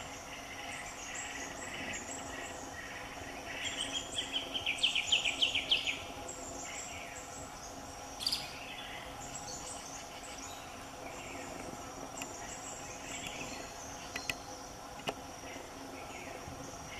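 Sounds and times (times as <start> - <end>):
bird calls: 0.0 - 14.8
insects chorus: 0.0 - 16.9.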